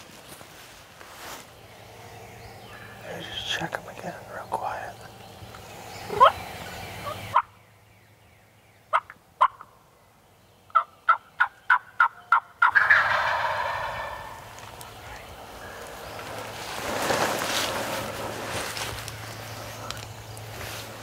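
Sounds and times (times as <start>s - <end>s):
turkey yelping: 6.1s - 6.4s, 8.9s - 9.7s, 10.7s - 14.6s
turkey gobbling: 6.1s - 7.5s, 8.9s - 9.7s, 10.7s - 14.6s.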